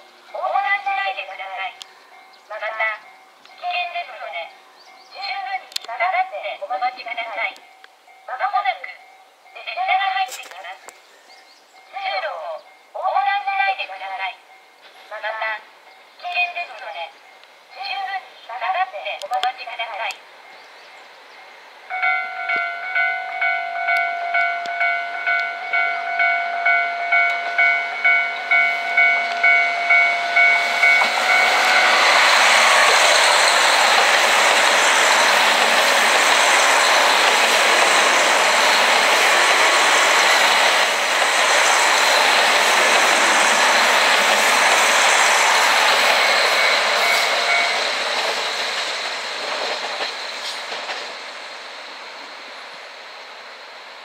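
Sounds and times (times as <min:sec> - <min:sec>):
diesel train passing at speed: 0:00.0 - 0:10.3, 0:11.3 - 0:54.0
electronic warning bell ringing: 0:21.9 - 0:34.7, 0:46.3 - 0:47.9.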